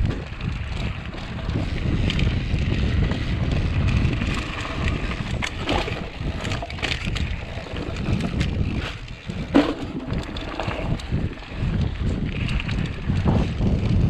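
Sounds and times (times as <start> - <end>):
bike clicks and rattles: 0.0 - 14.0
wind buffeting microphone: 0.0 - 14.0
tyre rumble on dirt: 4.4 - 11.2
bike knock: 9.5 - 10.7.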